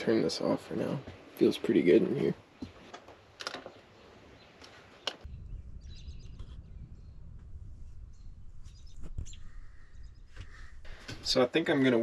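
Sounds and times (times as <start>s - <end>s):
faint bird chirps: 3.8s - 11.0s
wind on microphone: 5.2s - 11.2s.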